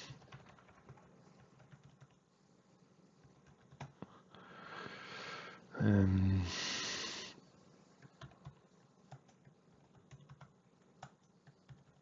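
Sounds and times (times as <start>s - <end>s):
computer keyboard typing: 0.0s - 2.3s, 3.2s - 4.1s, 8.0s - 12.0s.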